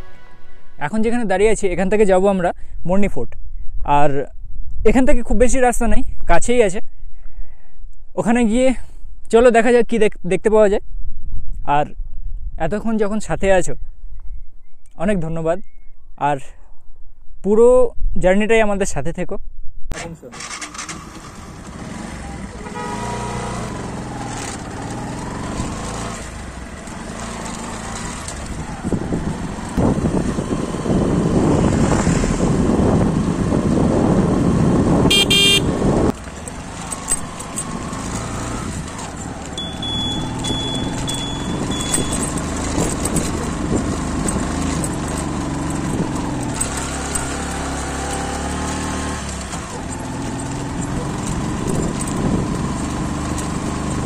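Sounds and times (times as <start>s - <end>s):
short horn beep: 0.0s - 0.9s, 22.4s - 23.7s, 35.1s - 35.8s, 39.6s - 42.3s
motorcycle engine running: 20.4s - 54.0s.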